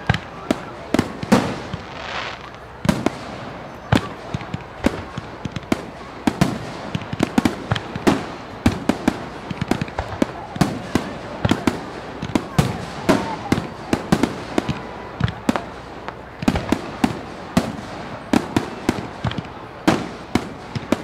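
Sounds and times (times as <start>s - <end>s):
fireworks bangs and pops: 0.0s - 21.0s
short hiss: 1.8s - 2.6s.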